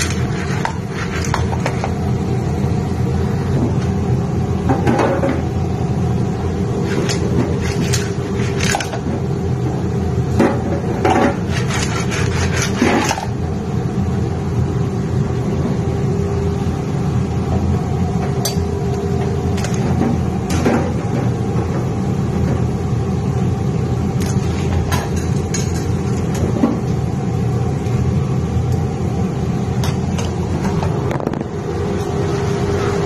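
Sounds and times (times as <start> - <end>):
shells and utensil scraping metal pan: 0.0 - 1.9, 6.8 - 9.0, 11.1 - 13.3
low rumble with hum: 0.0 - 33.0.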